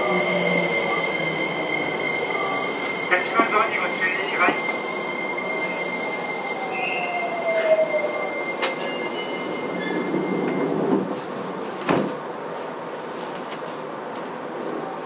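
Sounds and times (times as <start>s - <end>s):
steady high tone: 0.0s - 10.9s.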